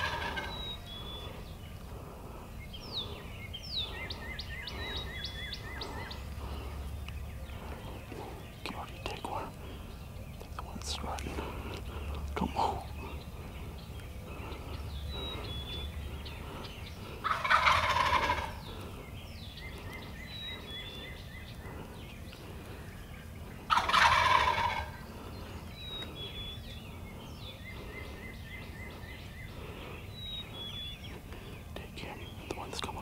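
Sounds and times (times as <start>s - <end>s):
turkey gobbling: 0.0s - 1.3s, 17.1s - 18.8s, 23.6s - 25.1s
small birds chirping: 0.0s - 33.0s.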